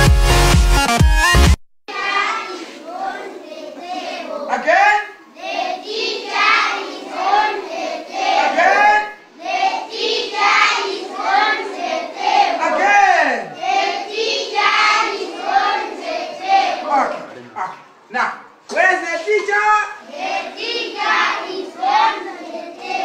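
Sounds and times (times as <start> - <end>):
children singing in unison: 1.9 - 4.6, 5.3 - 17.3, 20.0 - 23.0.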